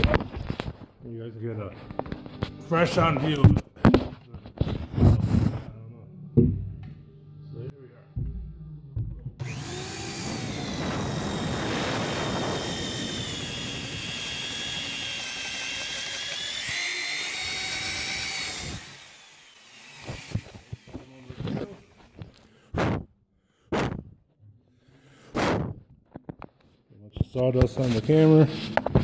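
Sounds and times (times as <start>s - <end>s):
power drill boring through wood: 9.4s - 23.0s.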